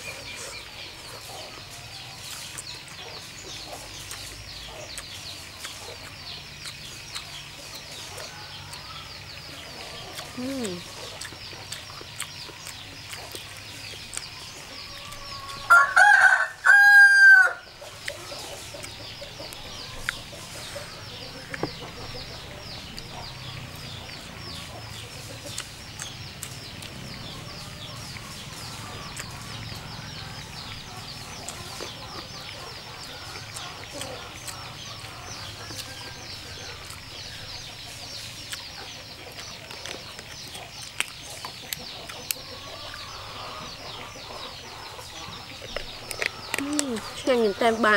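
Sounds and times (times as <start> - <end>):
rooster crowing: 14.8 - 17.7.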